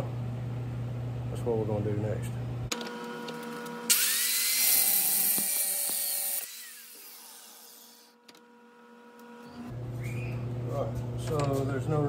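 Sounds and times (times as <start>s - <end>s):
grinder motor winding down: 2.8s - 8.2s
angle grinder cutting steel: 3.4s - 8.2s.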